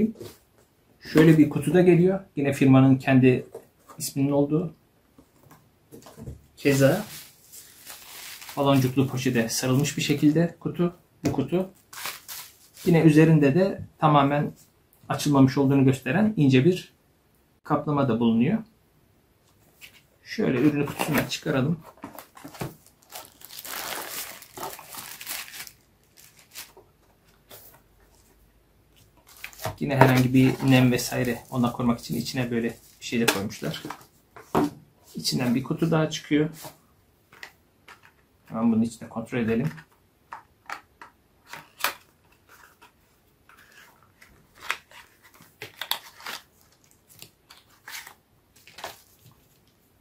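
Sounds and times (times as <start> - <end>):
plastic bag crinkling: 6.7 - 9.3, 22.2 - 26.8.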